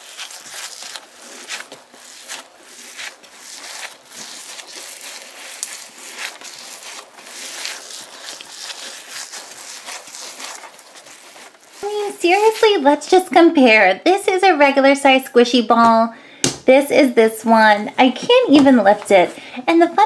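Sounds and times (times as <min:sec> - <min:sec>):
rubber stress ball squishing: 0:00.0 - 0:12.8.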